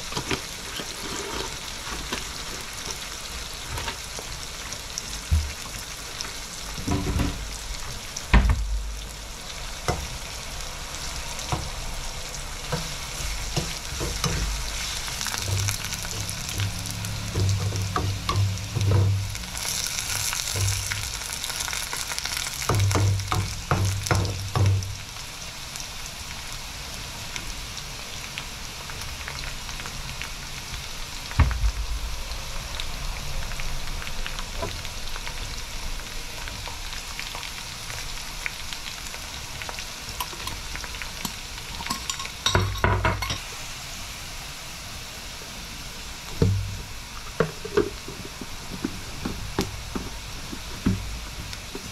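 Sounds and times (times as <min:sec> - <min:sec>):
onions sizzling in hot oil: 0:00.0 - 0:51.9
ladle scraping and knocking pan: 0:12.7 - 0:19.3, 0:47.4 - 0:51.1.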